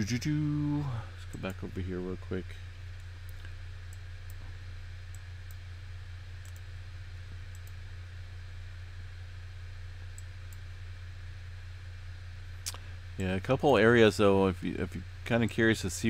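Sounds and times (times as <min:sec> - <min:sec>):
steady low hum: 0:00.0 - 0:16.0
computer mouse clicking: 0:06.4 - 0:06.7, 0:07.5 - 0:07.8.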